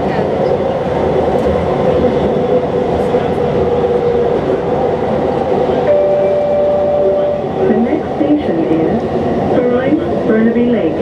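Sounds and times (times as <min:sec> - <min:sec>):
train rolling rumble: 0:00.0 - 0:11.0.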